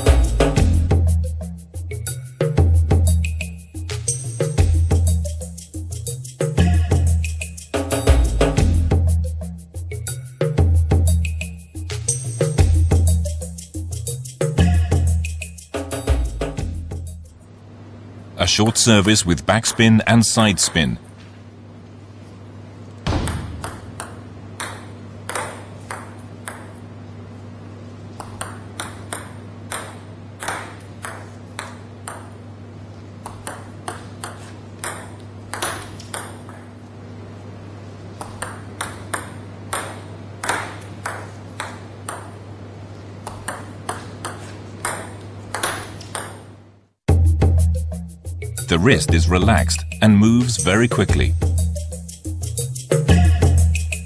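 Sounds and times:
table tennis ball clicking: 23.3s - 26.8s, 28.2s - 32.4s, 33.2s - 36.7s, 38.2s - 42.4s, 43.2s - 46.4s.

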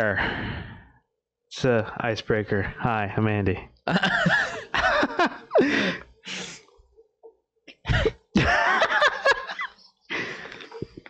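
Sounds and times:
men laughing: 3.9s - 6.1s, 7.9s - 11.0s.

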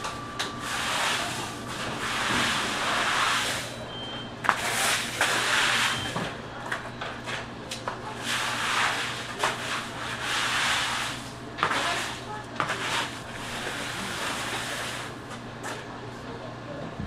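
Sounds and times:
steady low hum: 0.0s - 17.0s
broom scraping ice across floor: 0.6s - 3.8s, 4.5s - 6.2s, 8.2s - 15.2s.

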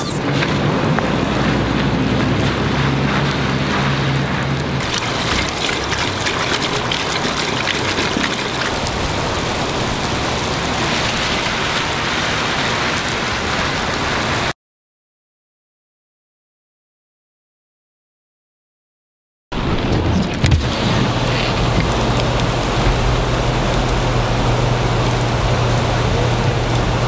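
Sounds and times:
heavy rain on pavement: 0.2s - 14.6s, 19.6s - 27.0s
water pouring from drainpipe: 1.3s - 14.5s, 19.6s - 27.0s.

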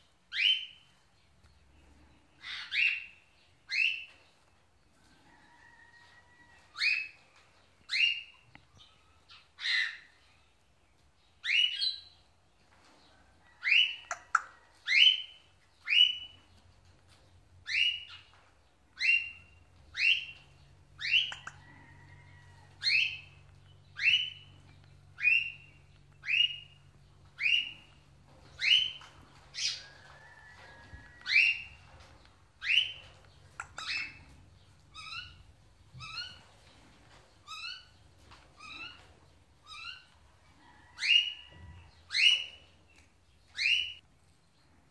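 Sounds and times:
parrots squawking: 21.2s - 21.6s.

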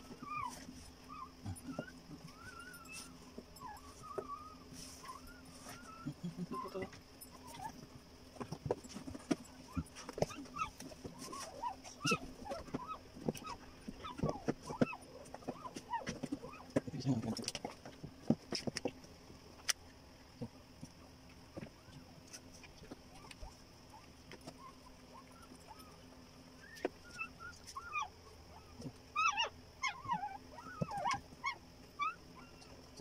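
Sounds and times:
puppy crying: 0.0s - 7.8s, 9.7s - 16.8s, 23.1s - 32.8s.

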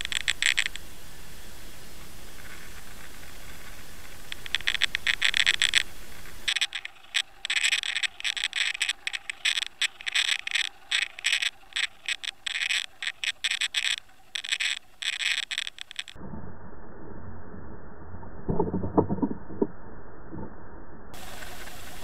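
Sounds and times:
steady background hiss: 0.0s - 16.2s, 21.2s - 22.0s
water rushing over camera: 1.9s - 22.0s.

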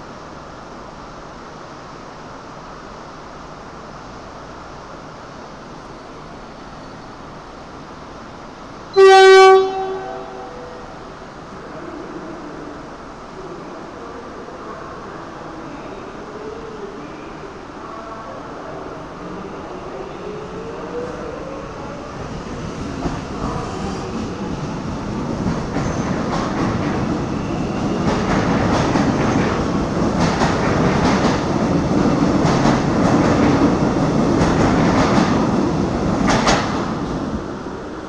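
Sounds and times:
train wheels clickety-clack: 22.6s - 37.3s.

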